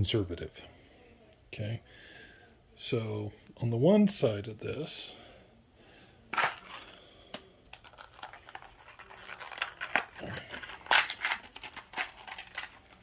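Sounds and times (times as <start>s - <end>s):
plastic bag crinkling: 7.7s - 13.0s.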